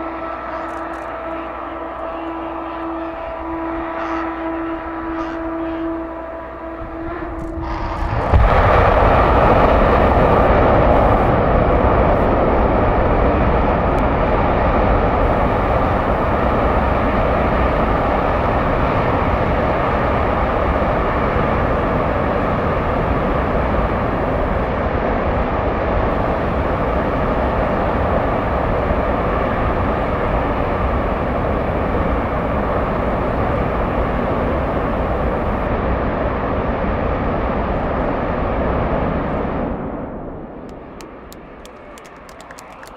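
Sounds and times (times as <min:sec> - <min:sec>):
rocket engine roaring: 0:00.0 - 0:42.9.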